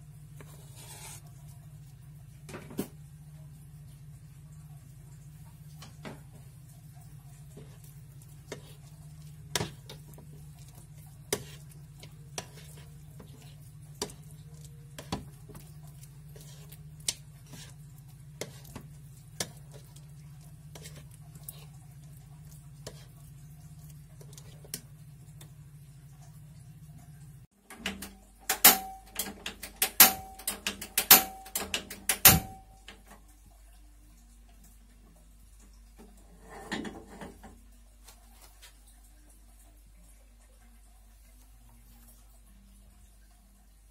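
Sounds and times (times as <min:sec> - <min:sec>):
metallic clanks of stove and pan: 0:27.7 - 0:33.2, 0:36.3 - 0:37.6.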